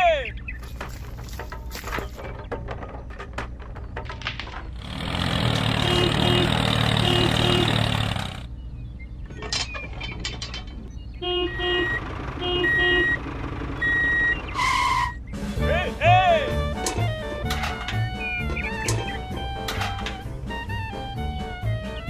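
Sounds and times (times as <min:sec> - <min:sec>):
toy tractor engine sound: 0:04.8 - 0:08.5, 0:11.2 - 0:22.0
electronic reversing beeps: 0:12.6 - 0:13.2, 0:13.8 - 0:15.4.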